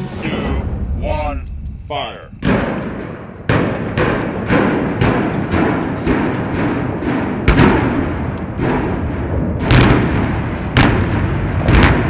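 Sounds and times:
continuous rumble: 0:00.0 - 0:12.0
explosive charges detonating: 0:00.0 - 0:12.0.

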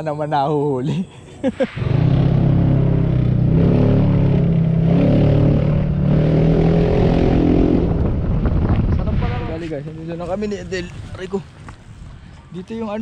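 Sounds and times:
engine humming: 0:01.5 - 0:09.7.

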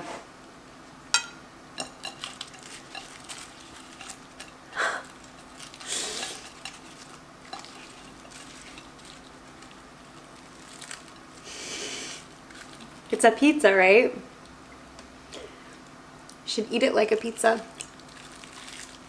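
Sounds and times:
pastry crackles and taps: 0:01.2 - 0:11.4.

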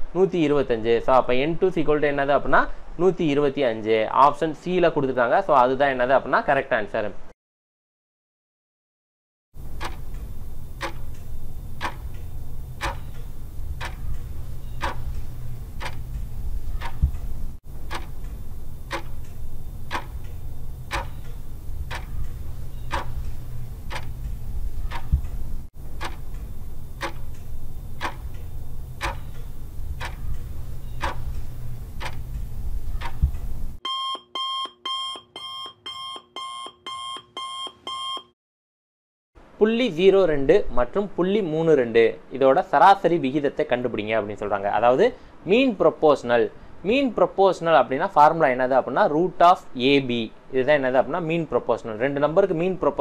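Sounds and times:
clock ticking: 0:09.6 - 0:33.8
low hum: 0:09.6 - 0:33.8
alarm clock beeping: 0:09.7 - 0:17.1, 0:17.9 - 0:24.2, 0:24.8 - 0:25.3, 0:26.0 - 0:32.3, 0:33.8 - 0:38.3.

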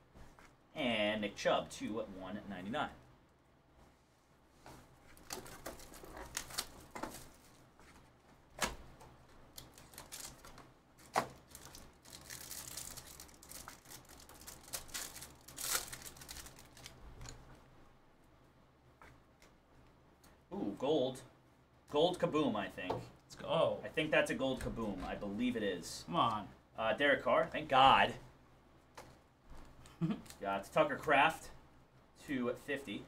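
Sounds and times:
cards clicking and rustling: 0:05.1 - 0:07.5, 0:08.6 - 0:17.5
plastic wrapper tearing and crinkling: 0:05.2 - 0:07.5, 0:09.5 - 0:17.4.

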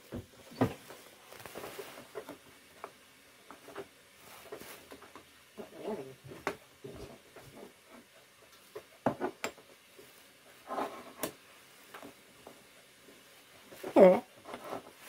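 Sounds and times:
knocks and rattles in cupboards: 0:08.8 - 0:09.7.

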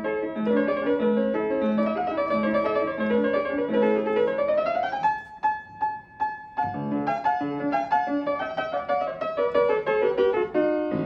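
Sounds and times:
fortepiano playing: 0:00.0 - 0:11.0.

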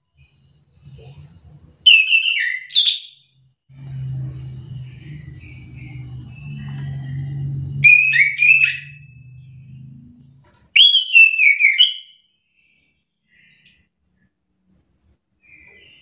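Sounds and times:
thrush singing whistled notes: 0:00.1 - 0:13.9
low steady hum: 0:03.7 - 0:10.8.

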